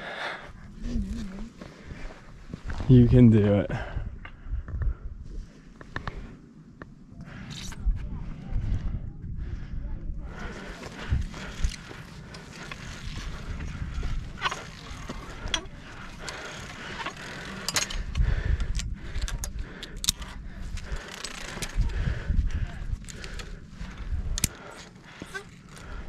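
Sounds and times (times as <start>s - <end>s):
wind noise on microphone: 0.6s - 6.4s, 7.2s - 24.8s
gear clicking against cables: 10.6s - 26.0s.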